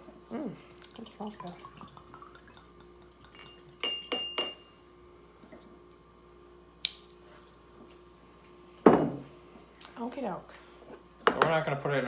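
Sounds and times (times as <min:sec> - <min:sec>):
bottle clinking on glass rim: 0:02.1 - 0:04.7.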